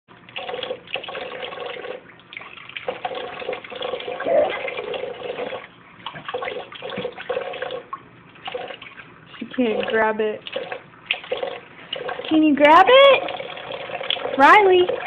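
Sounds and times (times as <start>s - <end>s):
faucet running into sink: 0.3s - 15.0s
baby vocalizing: 4.1s - 4.8s.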